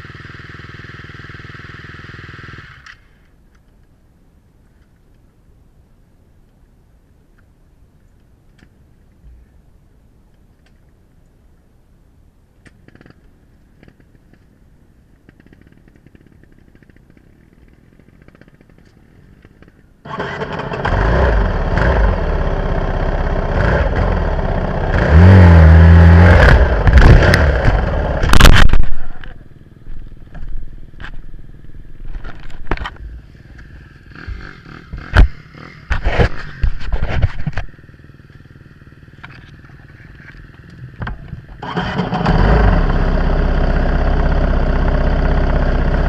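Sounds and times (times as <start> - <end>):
dirt bike engine revving: 20.1 - 29.2, 33.2 - 36.6, 41.6 - 46.0.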